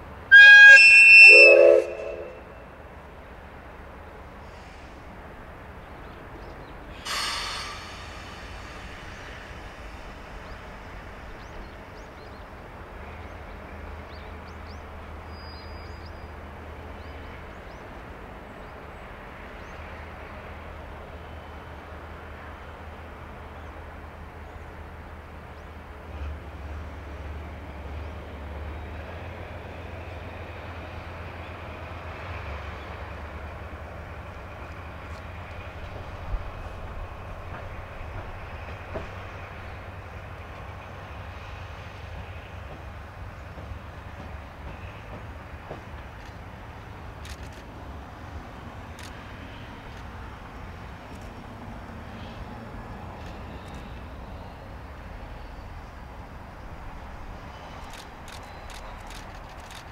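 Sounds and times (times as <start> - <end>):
steam locomotive rumbling: 0.0 - 59.9
sharp steam hiss: 6.9 - 11.2.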